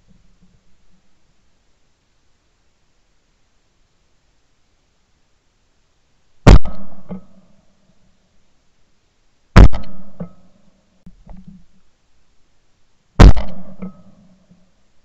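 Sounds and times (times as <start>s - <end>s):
shotgun shots: 6.5s - 7.3s, 9.6s - 10.4s, 13.2s - 14.1s.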